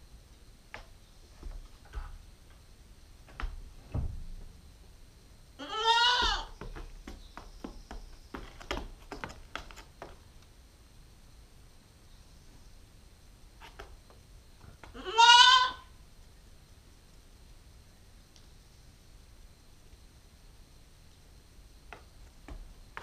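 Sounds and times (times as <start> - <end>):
goat kid bleating: 5.6 - 6.6, 14.9 - 15.9.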